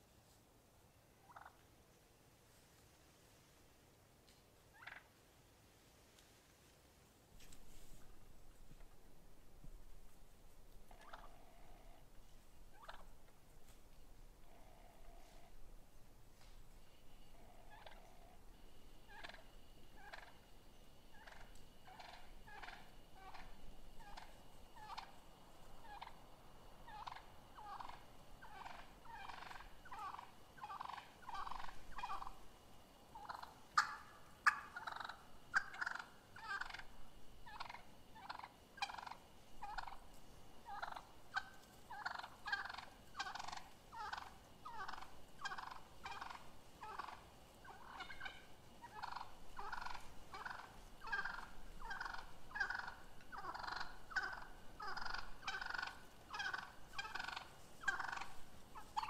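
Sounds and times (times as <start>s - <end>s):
wild turkeys calling: 1.1s - 1.8s, 4.6s - 5.2s, 7.4s - 59.0s.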